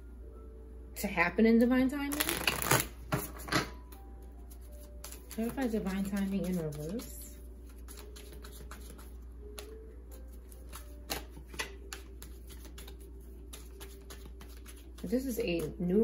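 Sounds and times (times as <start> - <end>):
low steady hum: 0.0 - 16.0
cards being shuffled: 2.1 - 15.8.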